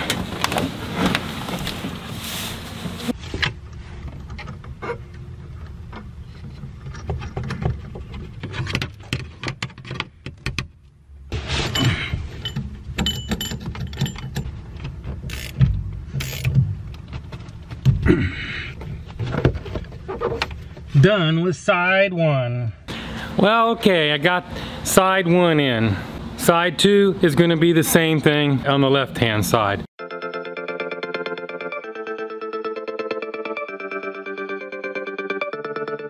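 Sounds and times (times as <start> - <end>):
rustling: 0.0 - 4.4
metal tools clinking: 11.7 - 14.6.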